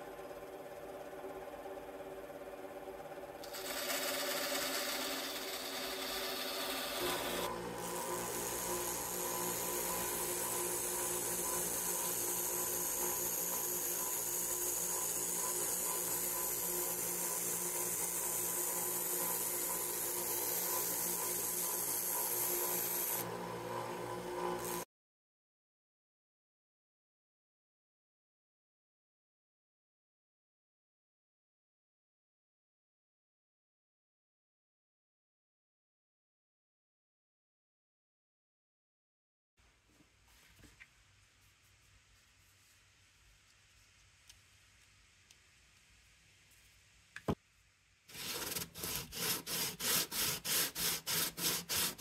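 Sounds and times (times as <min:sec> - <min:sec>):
bandsaw cutting wood: 0:03.4 - 0:23.3, 0:48.1 - 0:52.0
belt sander sanding plywood: 0:03.5 - 0:24.8, 0:48.1 - 0:52.0.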